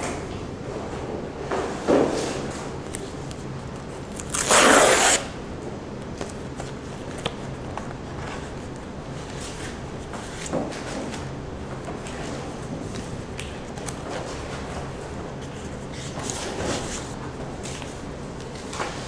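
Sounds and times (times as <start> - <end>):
plastic mailer tearing: 4.2 - 5.3.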